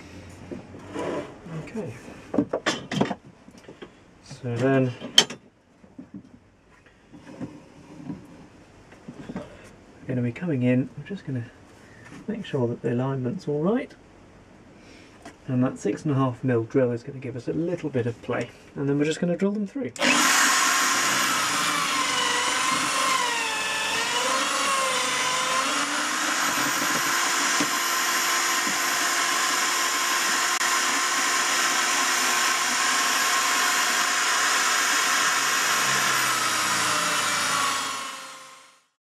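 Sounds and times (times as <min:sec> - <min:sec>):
electric drill boring wood: 0:20.0 - 0:38.9.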